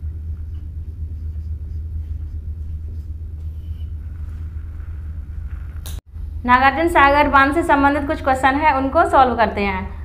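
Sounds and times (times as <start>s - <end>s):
low rumble: 0.0s - 9.1s
marker on whiteboard: 0.4s - 4.0s.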